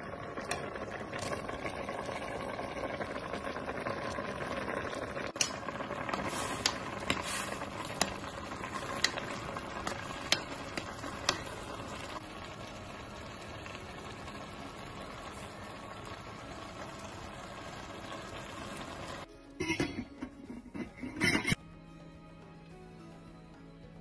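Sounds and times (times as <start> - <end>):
pot of broth bubbling: 0.0 - 21.6
spoon clinking against pot: 19.6 - 21.6.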